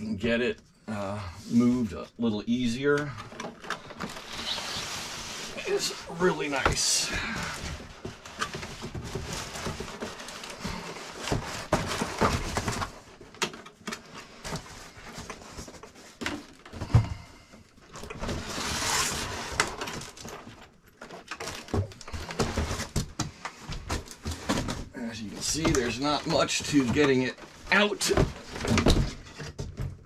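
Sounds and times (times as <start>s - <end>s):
cardboard box rustling and scraping: 3.8s - 13.1s, 18.1s - 20.3s
long sliding scrape: 4.2s - 6.0s.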